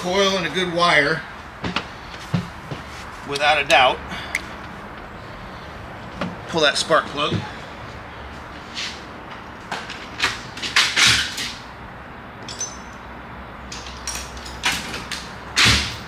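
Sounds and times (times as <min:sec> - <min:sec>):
hand tools knocking and clinking: 0:12.4 - 0:13.1.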